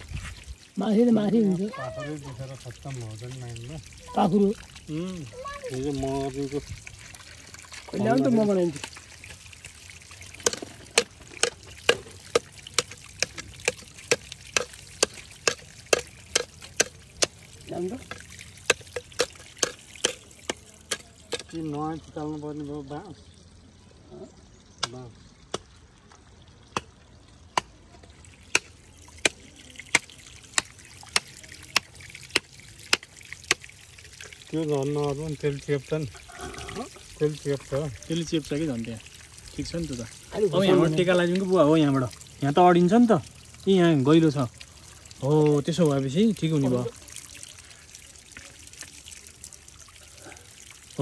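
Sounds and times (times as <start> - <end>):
trickle of running water: 0.0 - 51.0
hand tool strikes: 14.1 - 17.3.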